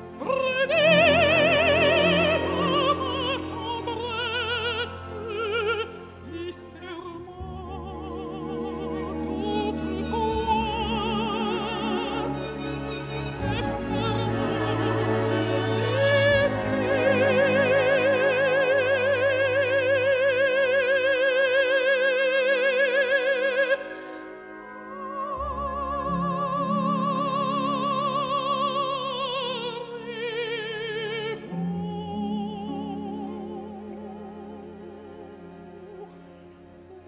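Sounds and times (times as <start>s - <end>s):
operatic woman singing: 0.0s - 36.2s
orchestra playing: 0.0s - 37.0s.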